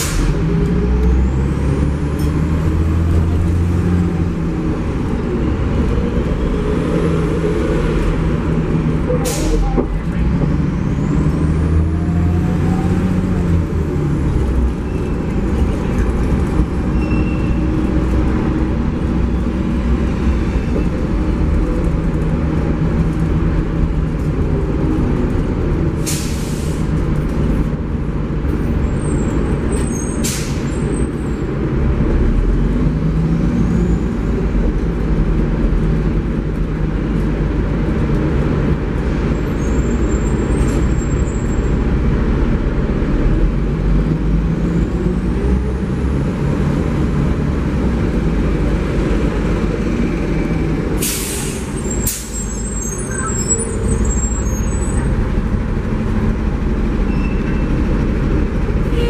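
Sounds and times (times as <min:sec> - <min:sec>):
bus engine running under load: 0:00.0 - 0:59.0
air brake hisses: 0:09.2 - 0:09.7, 0:26.0 - 0:26.9, 0:30.2 - 0:30.7, 0:51.0 - 0:52.7.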